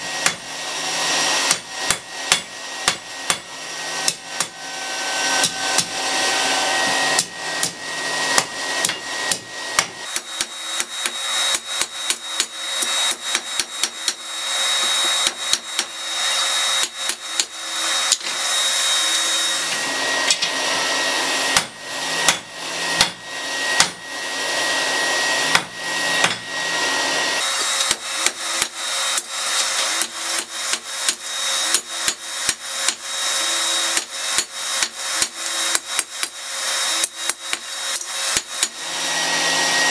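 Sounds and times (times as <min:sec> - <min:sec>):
hammer striking metal on anvil: 0:00.0 - 0:00.5, 0:01.4 - 0:04.6, 0:05.4 - 0:06.0, 0:07.1 - 0:14.2, 0:14.8 - 0:16.0, 0:21.5 - 0:23.2, 0:23.8 - 0:24.0, 0:25.5 - 0:26.5, 0:27.6 - 0:33.0.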